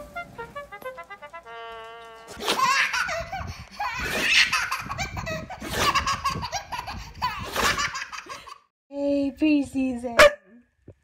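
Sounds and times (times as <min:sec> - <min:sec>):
baby laughing: 0:02.4 - 0:08.6.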